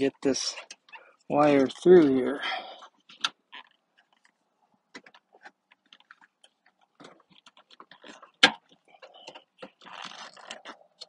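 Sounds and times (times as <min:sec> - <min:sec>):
wire scraping through rubber grommet: 0:05.0 - 0:11.0.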